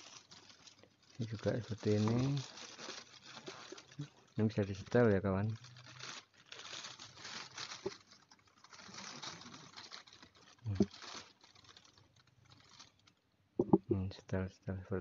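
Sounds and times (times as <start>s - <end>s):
plastic wrapping crinkling: 0.0s - 13.8s.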